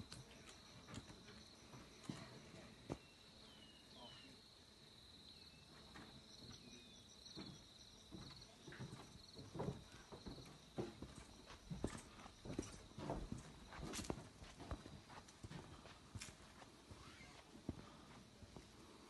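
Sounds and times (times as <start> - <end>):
insect trill: 0.0 - 14.9, 16.9 - 17.6
footsteps on dirt path: 7.4 - 18.9.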